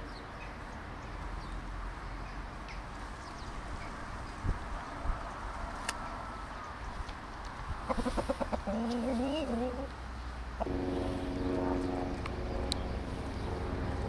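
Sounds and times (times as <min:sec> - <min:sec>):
chicken clucking: 0:07.8 - 0:09.9
steady low hum: 0:10.5 - 0:14.0.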